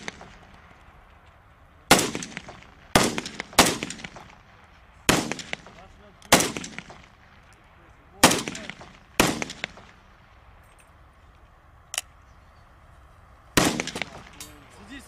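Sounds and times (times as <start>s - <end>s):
rifle gunshots with echo: 0.0s - 0.8s, 1.8s - 7.5s, 8.1s - 10.5s, 13.5s - 14.7s
quieter crack: 0.0s - 10.4s, 13.5s - 14.7s.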